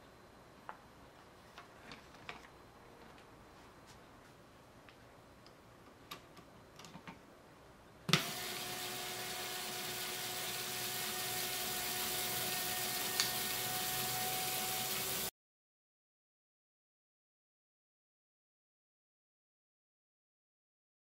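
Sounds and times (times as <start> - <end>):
electric motor whirring: 8.2 - 15.3.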